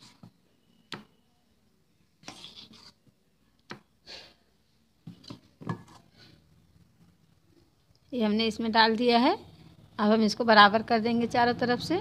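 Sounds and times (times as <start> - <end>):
spoon scraping batter from bowl: 2.2 - 3.1.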